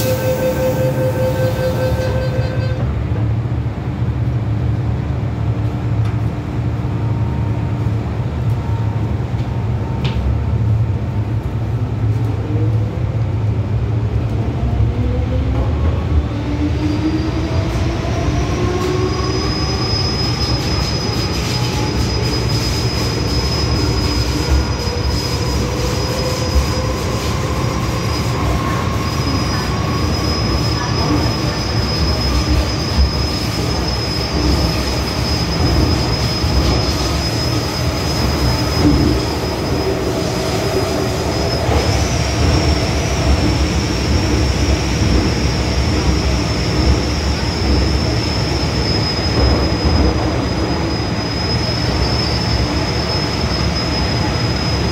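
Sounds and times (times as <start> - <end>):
thin high whistle: 0.0 - 2.8
train running rumble: 19.9 - 54.9.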